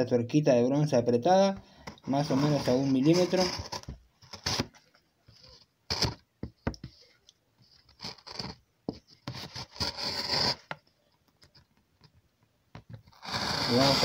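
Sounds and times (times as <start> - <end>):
blade scraping through leather: 9.4 - 10.7, 13.1 - 14.0.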